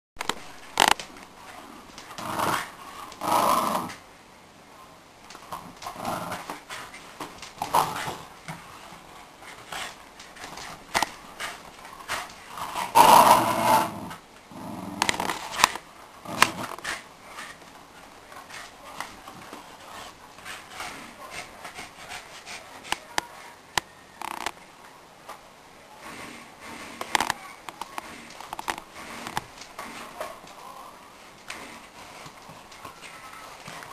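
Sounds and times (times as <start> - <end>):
dogs growling in play: 0.8 - 4.0, 5.4 - 17.1, 26.0 - 30.6.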